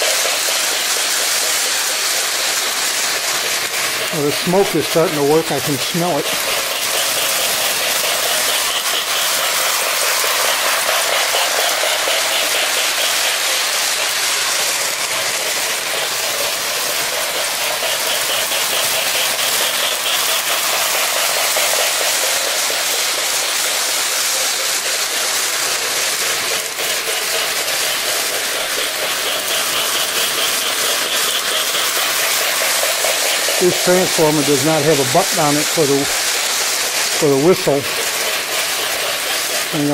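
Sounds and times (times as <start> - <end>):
metal wheels rolling on track: 0.0 - 39.9
model train motor whirring: 0.0 - 39.9.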